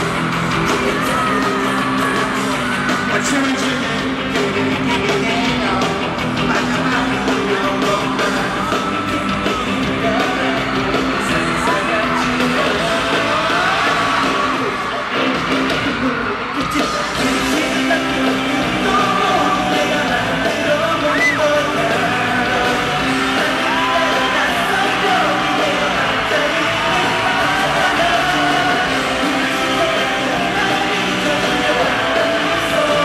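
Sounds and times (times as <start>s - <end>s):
live pop song in arena: 0.0s - 33.0s
yells over music: 0.0s - 33.0s
people singing: 6.7s - 15.1s, 16.0s - 33.0s.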